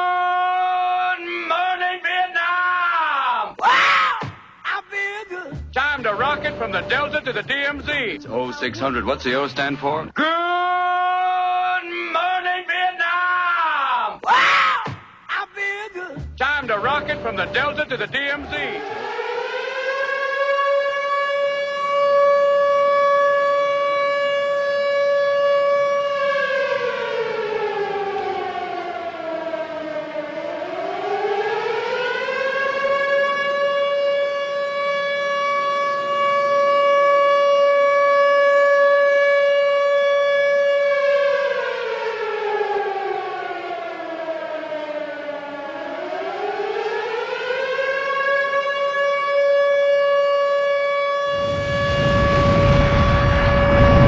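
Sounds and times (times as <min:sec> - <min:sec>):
mechanical siren wailing: 0:05.5 - 0:08.7, 0:16.7 - 0:54.0.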